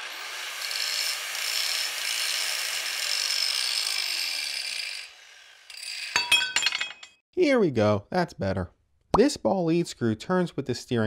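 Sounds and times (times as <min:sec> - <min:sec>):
power tool cutting metal: 0:00.0 - 0:06.2.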